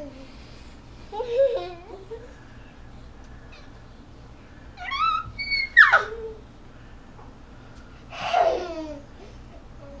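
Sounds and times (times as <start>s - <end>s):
toddler squealing: 4.8s - 6.4s.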